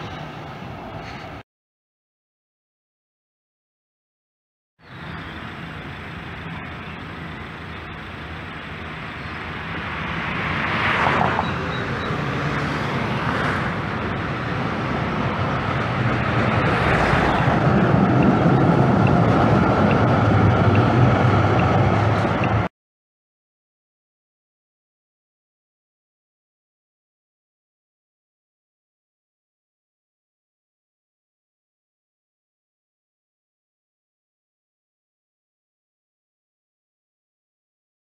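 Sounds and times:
street traffic: 0.0s - 1.4s, 4.8s - 22.7s
tram rolling past: 4.8s - 22.7s
tram wheels rumbling on rails: 4.9s - 22.7s
vehicle passing: 5.0s - 22.7s.

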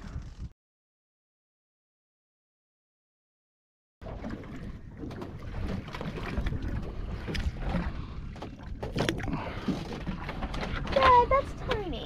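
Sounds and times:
water slapping hull: 4.0s - 12.0s.

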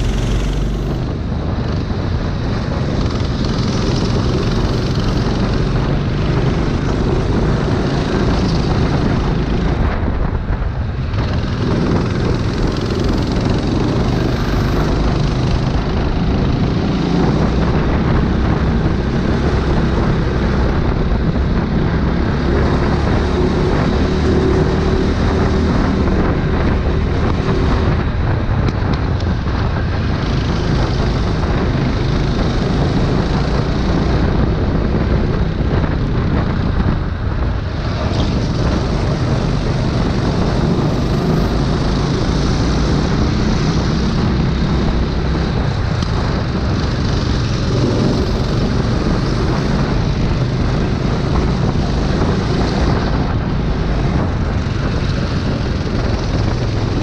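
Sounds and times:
go-kart engine racing: 0.0s - 57.0s
wind rush on microphone: 0.0s - 57.0s.

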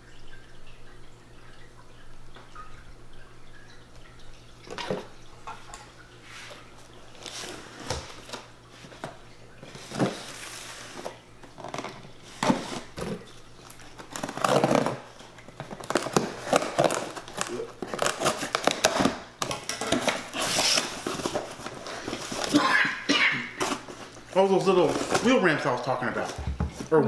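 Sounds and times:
packing tape tearing: 13.9s - 22.6s.

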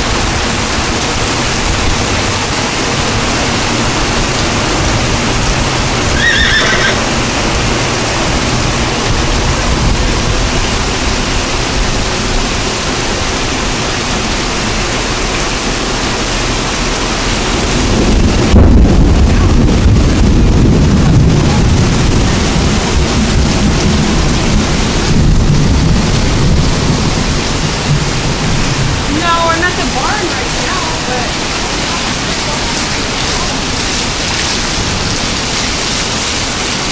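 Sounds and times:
heavy rain pouring: 0.0s - 36.9s
horse whinny: 6.2s - 7.0s.

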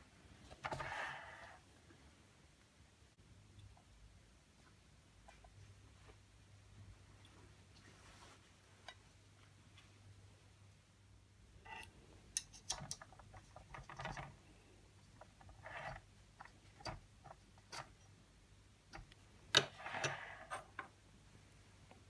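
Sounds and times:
rustles: 7.0s - 10.1s.

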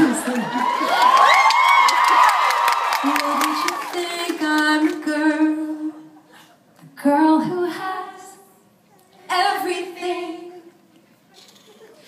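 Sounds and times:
woman singing a cappella: 3.0s - 6.2s, 6.8s - 8.6s, 9.3s - 10.8s.

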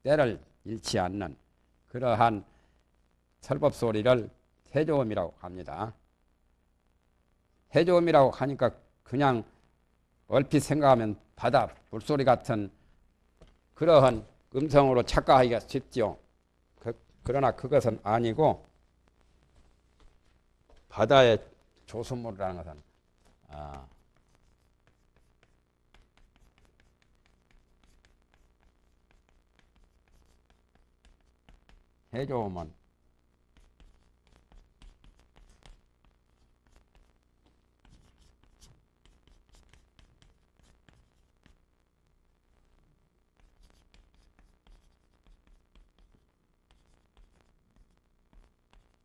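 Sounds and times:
chalk tapping and scratching on board: 23.3s - 31.8s, 33.5s - 41.6s, 43.4s - 49.0s.

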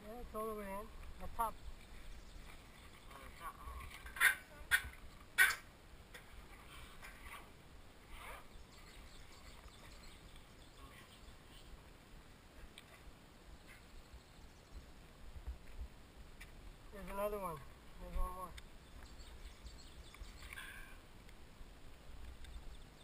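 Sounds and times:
faint chirps: 8.1s - 11.8s, 18.8s - 21.0s.

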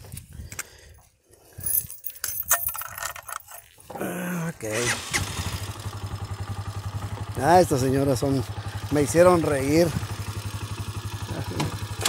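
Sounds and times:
clicks and rattles handling motorcycle: 1.6s - 4.0s, 9.9s - 12.0s.

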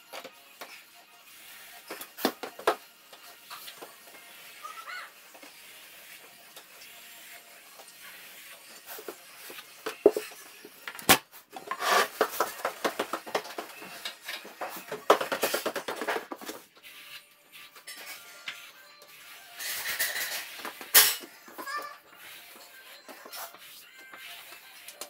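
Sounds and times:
trowel scraping plaster: 11.6s - 13.2s, 15.4s - 25.0s.

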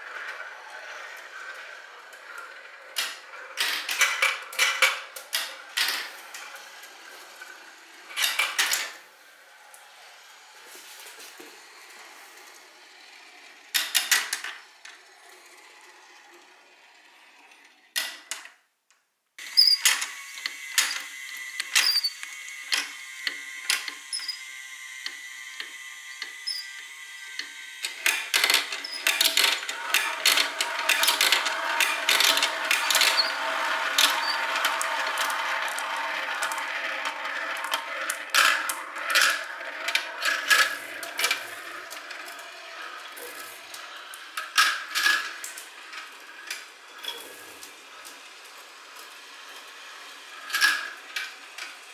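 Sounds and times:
marbles rattling along plastic track: 0.0s - 9.0s, 19.6s - 51.9s
motorized marble elevators whirring: 0.0s - 18.3s, 19.4s - 51.9s
marbles rolling in plastic funnel: 28.0s - 45.7s.

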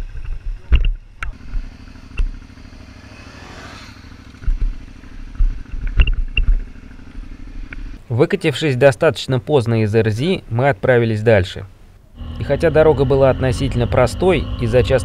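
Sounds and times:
motorcycle engine running: 0.0s - 8.0s, 12.2s - 15.0s.

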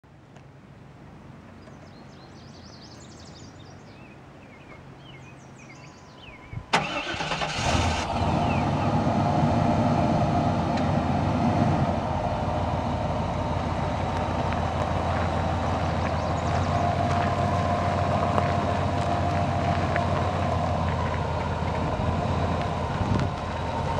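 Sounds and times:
engine cranking and idling: 6.7s - 23.9s.

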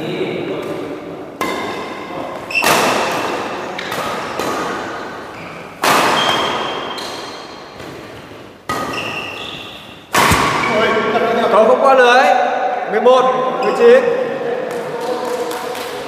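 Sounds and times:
racket hitting shuttlecock: 0.6s - 10.8s
shoes squeaking on court floor: 1.4s - 11.0s.

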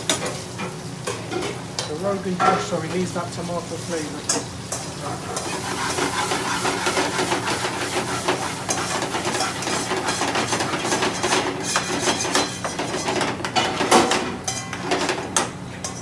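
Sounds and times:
food sizzling in a frying pan: 0.0s - 16.0s
metal spoon scraping a pan: 4.3s - 13.3s.

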